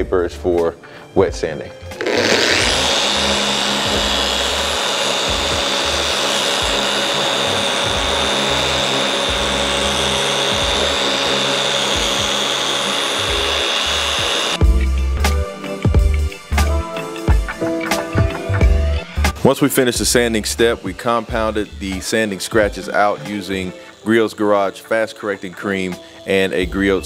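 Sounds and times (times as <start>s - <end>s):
orbital polisher whining: 1.9s - 14.8s, 20.7s - 26.6s.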